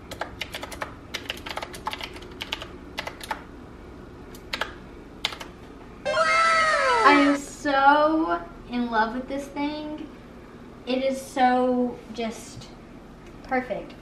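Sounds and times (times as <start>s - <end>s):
mechanical keyboard typing: 0.1s - 3.4s, 4.4s - 5.5s
woman's loud voice: 6.1s - 7.7s.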